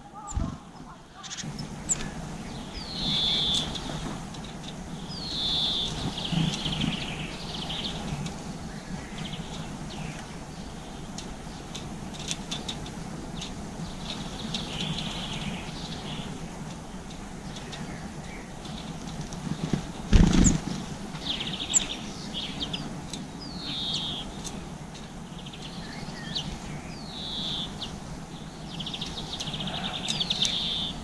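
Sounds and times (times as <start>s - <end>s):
songbirds singing: 0.0s - 31.0s.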